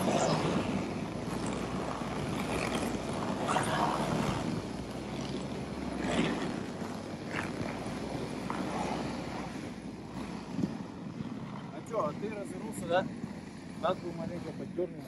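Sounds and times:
snowmobile engine running: 0.0s - 15.0s
wind on microphone: 0.0s - 15.0s.

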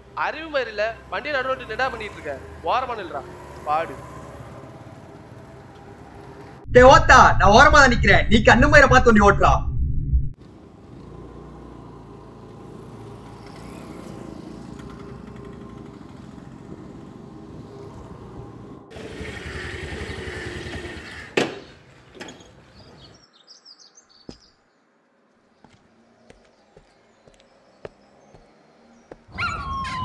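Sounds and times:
street traffic: 0.0s - 6.7s, 10.4s - 30.0s
small birds chirping: 19.9s - 29.3s.

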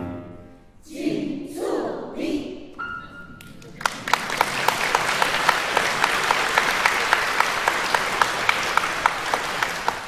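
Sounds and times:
audience applauding: 3.4s - 10.0s
steady close clapping: 3.4s - 10.0s.

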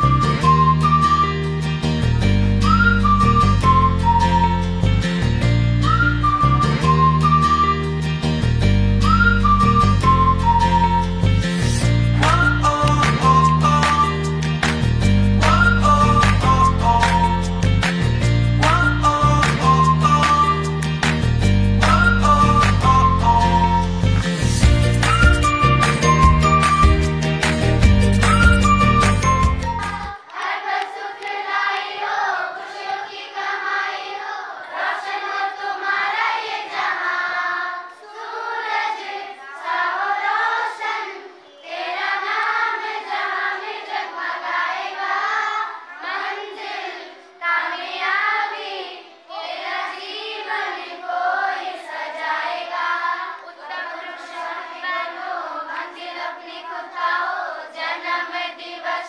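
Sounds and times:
girls singing unaccompanied: 29.8s - 59.0s.

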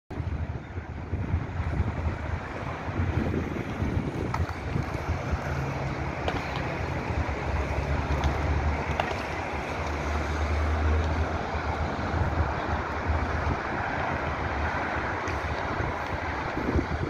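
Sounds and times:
city traffic hum: 0.1s - 17.0s
wind buffeting microphone: 0.1s - 17.0s.

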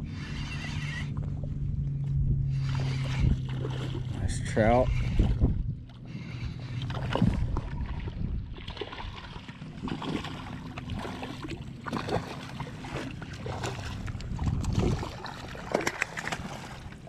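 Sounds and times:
choppy water: 0.0s - 17.0s
wind rumbling on microphone: 0.0s - 17.0s
fish splashing in water: 2.5s - 4.3s, 6.1s - 17.0s.

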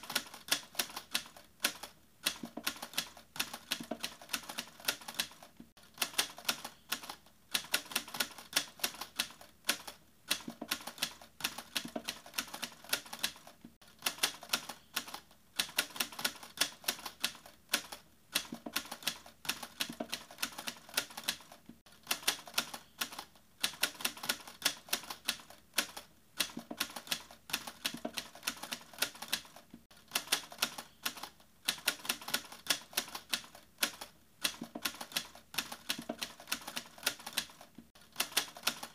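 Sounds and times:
rapid clicking like typing: 0.0s - 38.9s.

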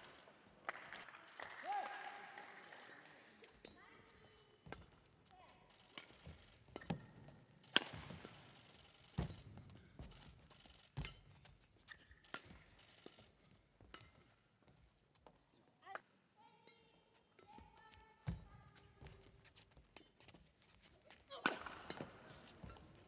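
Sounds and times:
rackets hitting shuttlecock: 1.4s - 14.8s, 21.2s - 23.0s
shoe squeaks on court floor: 9.2s - 13.3s.

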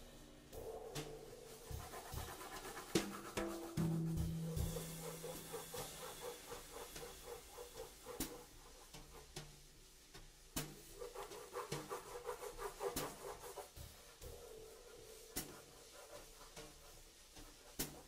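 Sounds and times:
faint swing drumming: 0.0s - 18.0s.

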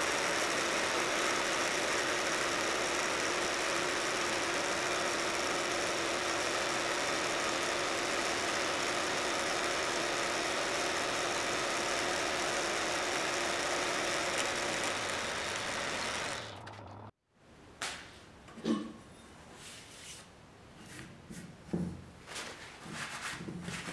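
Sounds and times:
milling machine cutting steel: 0.0s - 17.1s.

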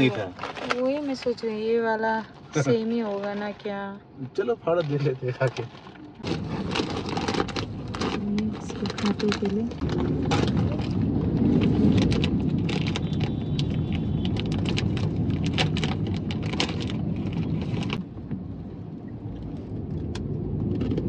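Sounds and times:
car road noise: 4.1s - 21.0s
plastic snack packet crinkling: 4.8s - 18.0s.

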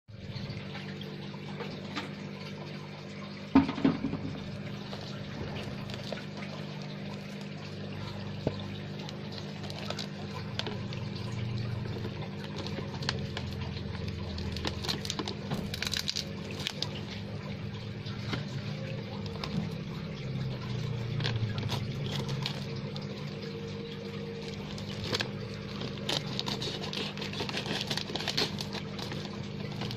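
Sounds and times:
aquarium pump hum: 0.1s - 29.9s
aquarium water splashing: 0.1s - 29.9s
paper parcel rustling: 9.1s - 17.0s, 24.4s - 29.9s.

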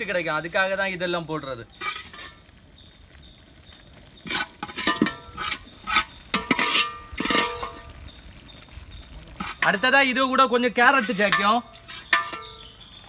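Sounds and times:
metal spoon scraping pots: 1.7s - 2.4s, 4.2s - 7.9s, 9.4s - 10.0s, 10.7s - 12.8s.

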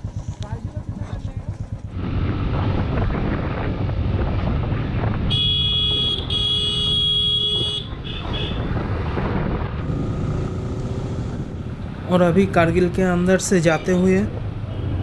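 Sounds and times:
motorcycle engine rumble: 0.0s - 15.0s
wind noise: 2.0s - 5.6s, 6.9s - 10.5s
vehicle horn honking: 5.3s - 8.6s.

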